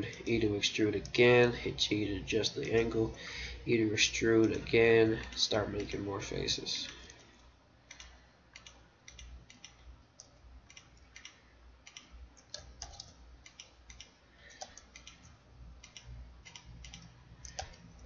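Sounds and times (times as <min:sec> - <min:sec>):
keyboard and mouse clicks: 0:02.5 - 0:03.1, 0:06.8 - 0:18.0.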